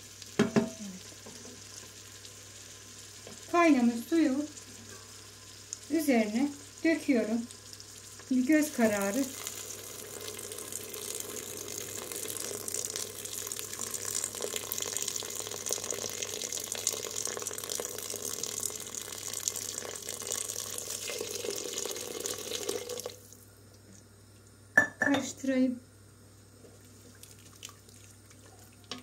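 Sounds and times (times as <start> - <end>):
water pouring into pot: 6.6 - 23.4, 26.8 - 29.0.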